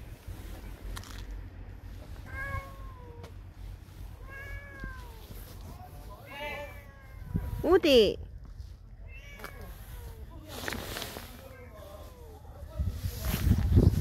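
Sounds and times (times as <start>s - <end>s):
cat meowing: 2.2s - 3.4s, 4.1s - 5.4s, 6.2s - 7.6s, 9.0s - 10.2s.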